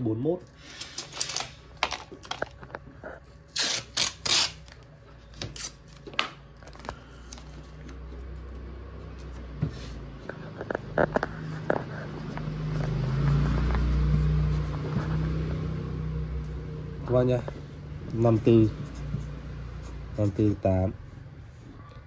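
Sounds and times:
masking tape ripping off roll: 0:03.5 - 0:04.8.

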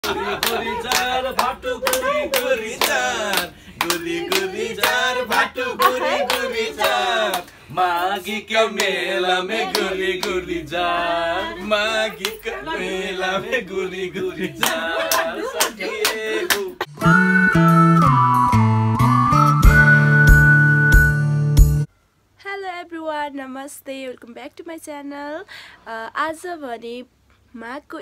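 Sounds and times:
hand clapping: 0:00.0 - 0:07.5, 0:08.8 - 0:09.0, 0:09.6 - 0:10.4, 0:14.6 - 0:16.9
group singing: 0:00.0 - 0:16.9.

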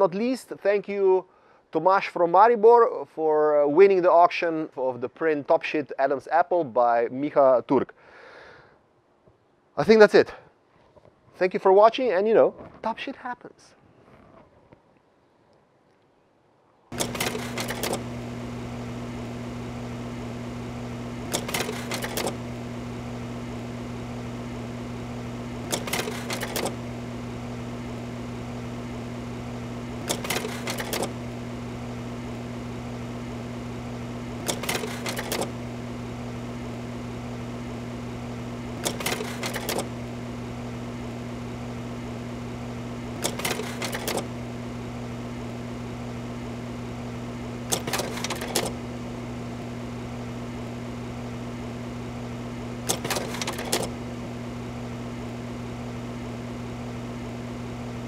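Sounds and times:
low machine hum: 0:16.9 - 0:58.0
rattling clatter of clicks: 0:17.0 - 0:18.1, 0:21.3 - 0:22.4, 0:25.6 - 0:26.8, 0:30.0 - 0:31.2, 0:34.4 - 0:35.5, 0:38.8 - 0:39.9, 0:43.2 - 0:44.3, 0:47.7 - 0:48.8, 0:52.9 - 0:54.0.

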